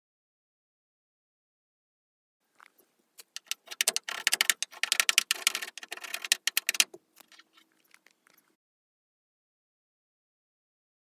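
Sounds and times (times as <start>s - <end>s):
plastic spreader scraping metal: 3.3s - 7.0s.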